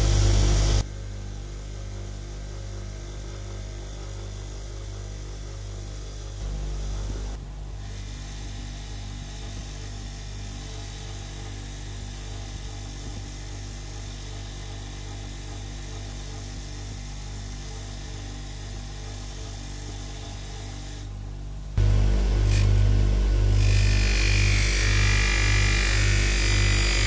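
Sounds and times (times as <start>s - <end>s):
wire wheel grinder brushing metal: 22.4s - 27.0s.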